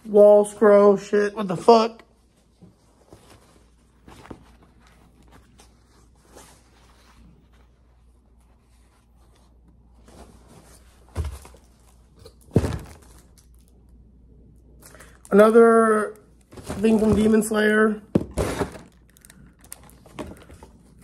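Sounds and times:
paper scroll rustling and crinkling: 0:02.2 - 0:13.8.

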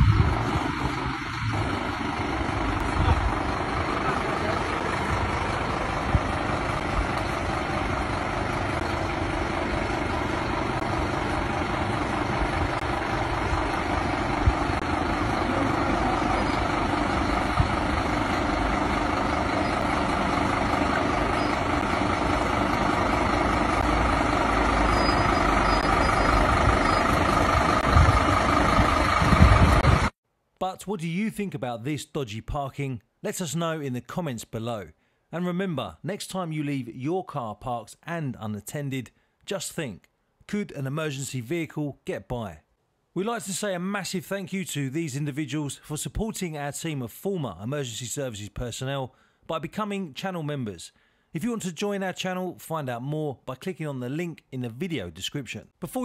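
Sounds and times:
diesel engine idling: 0:00.0 - 0:30.2.

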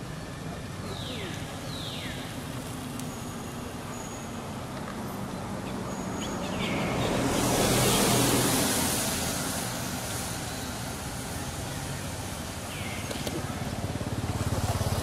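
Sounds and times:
motor vehicle passing: 0:00.0 - 0:15.0.

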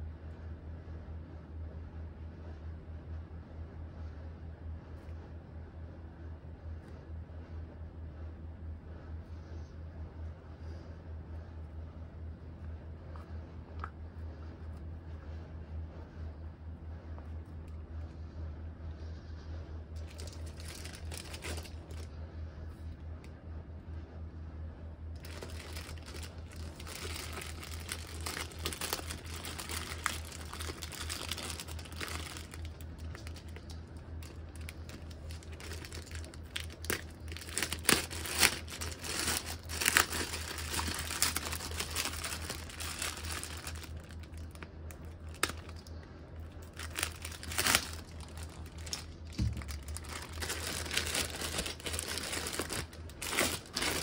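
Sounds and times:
plastic bag crinkling: 0:20.0 - 0:22.1, 0:25.2 - 0:54.0
sharp plastic crackles: 0:20.0 - 0:22.1, 0:25.2 - 0:54.0.

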